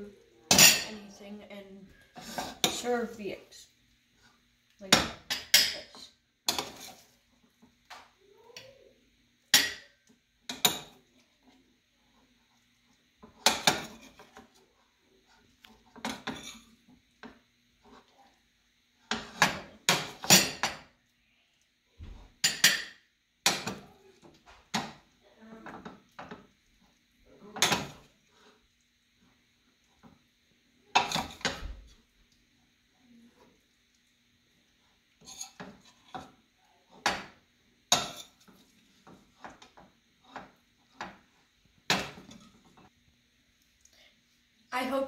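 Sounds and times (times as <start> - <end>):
metal spoon clinking on pan and plates: 0.5 - 1.1, 4.9 - 7.0, 9.5 - 11.0, 16.0 - 16.7, 19.1 - 20.9, 22.4 - 23.8, 27.5 - 28.1, 30.9 - 31.7, 37.0 - 41.2.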